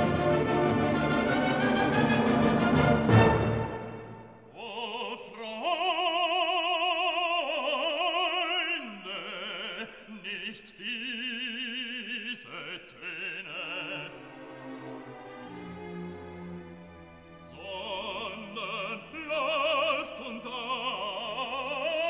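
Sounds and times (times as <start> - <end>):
classical accompaniment: 0.0 - 4.5, 13.8 - 21.4
opera singing with vibrato: 4.5 - 14.4, 17.5 - 22.0.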